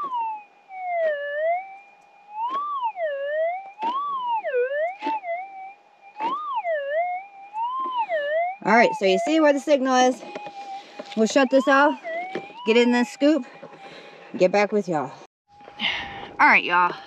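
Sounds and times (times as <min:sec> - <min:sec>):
metal detector tone warbling: 0:00.0 - 0:13.6.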